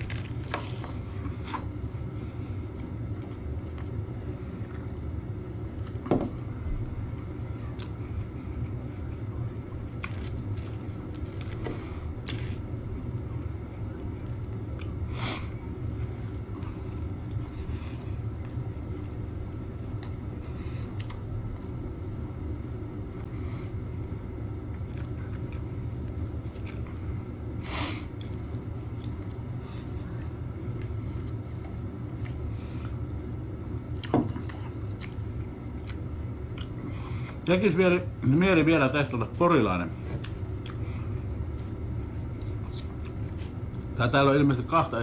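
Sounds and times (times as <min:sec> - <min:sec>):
low hum: 0:00.0 - 0:45.0
chewing: 0:07.4 - 0:11.6, 0:20.8 - 0:21.8, 0:24.7 - 0:27.2, 0:33.9 - 0:36.9, 0:40.2 - 0:44.0.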